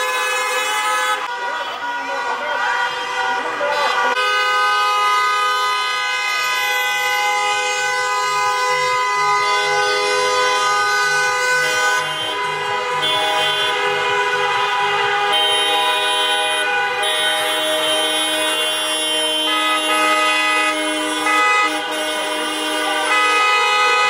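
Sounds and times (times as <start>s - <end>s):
car horns honking: 0.0s - 24.0s.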